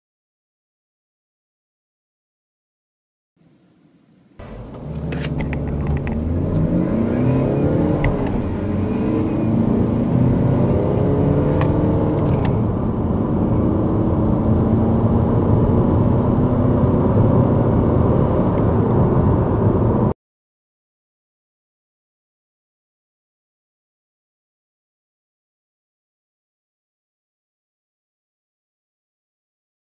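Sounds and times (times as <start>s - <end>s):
car engine accelerating: 4.4s - 20.2s.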